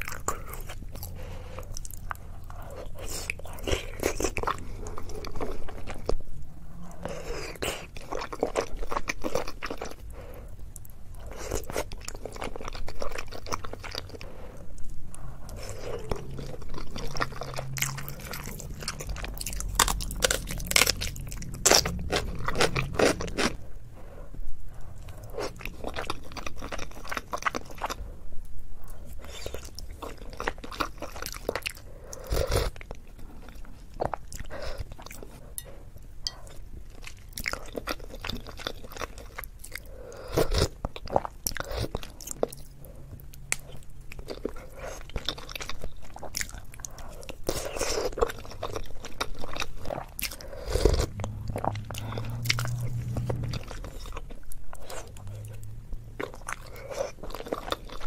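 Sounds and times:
wet chewing and mouth smacks: 36.3 - 58.0.

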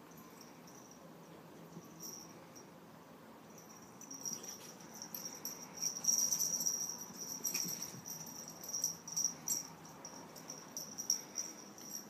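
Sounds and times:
pet collar jingling: 3.6 - 12.0.

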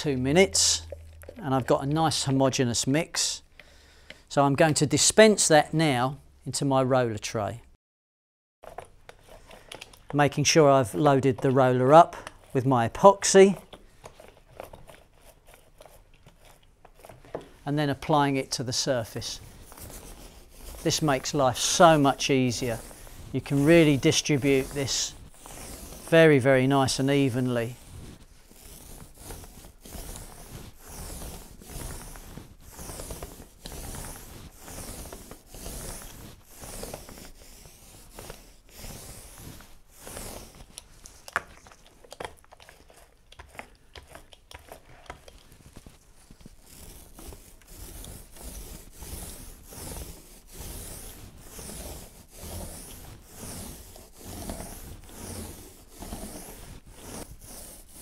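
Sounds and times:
foam roller rubbing on wood: 0.0 - 2.4, 17.7 - 41.1, 42.6 - 58.0.

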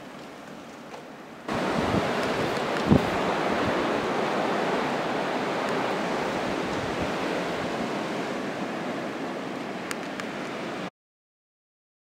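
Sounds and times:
blizzard wind blowing: 1.2 - 10.9
wind buffeting microphone: 1.5 - 10.8.

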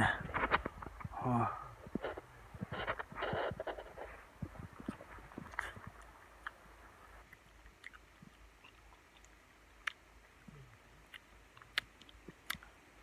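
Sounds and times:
person chewing blueberries: 0.4 - 13.0
wet mouth clicks: 4.8 - 6.6, 7.3 - 12.7.

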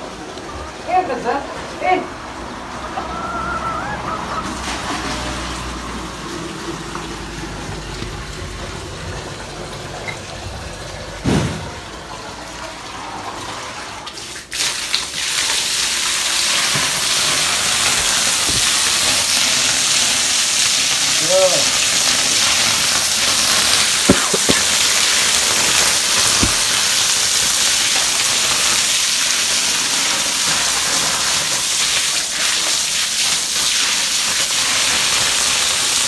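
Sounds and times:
water running: 0.0 - 36.0
thump: 11.2 - 11.8, 18.5 - 18.7, 24.1 - 24.6, 26.4 - 26.7.

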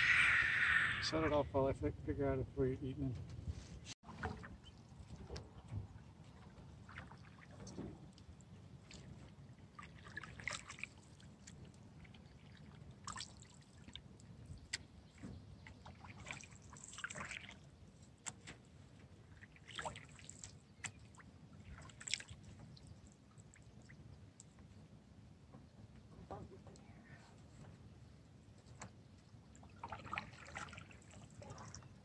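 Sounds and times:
paddle strokes with splashes: 4.0 - 24.1, 29.5 - 32.0.

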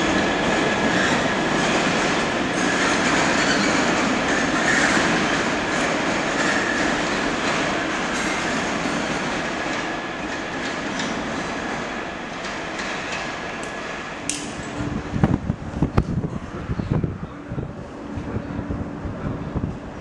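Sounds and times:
train rushing past on rails: 0.0 - 20.0
wind buffeting microphone: 13.7 - 20.0.

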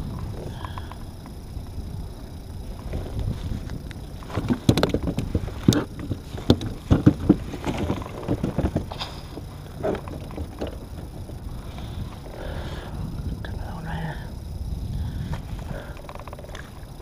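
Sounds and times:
gear knocking on plastic kayak: 2.8 - 12.4, 15.3 - 17.0.

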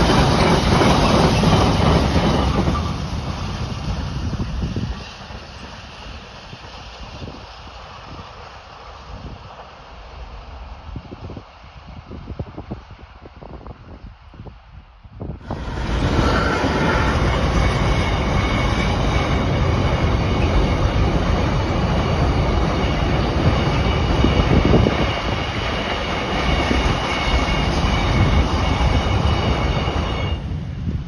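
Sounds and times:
train wheels rumbling on rails: 0.0 - 31.0
steady high-pitched tones: 15.5 - 30.6.

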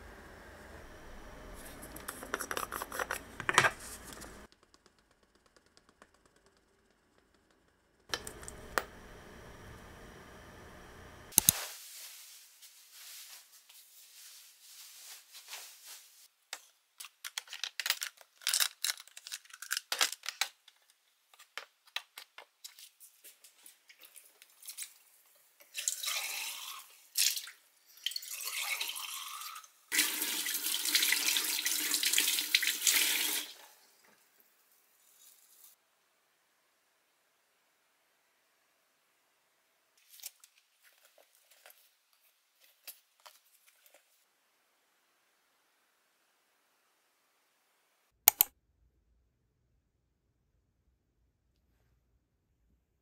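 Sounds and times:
clicks and rustles of handling: 16.5 - 24.9.

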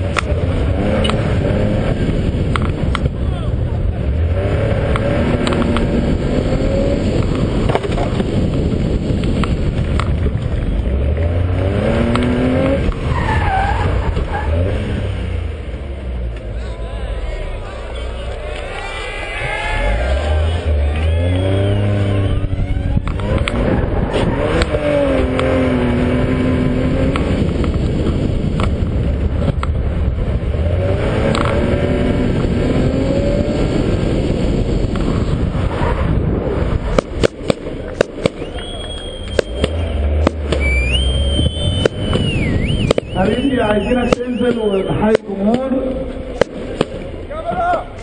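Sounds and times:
race car engine revving: 0.0 - 48.0
tyre and road noise: 0.0 - 48.0
short high squeals: 38.4 - 40.0.

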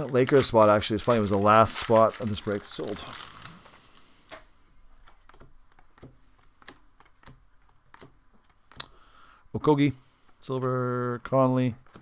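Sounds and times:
foil pack rustling: 0.0 - 4.2
cards clicking: 4.2 - 9.1.

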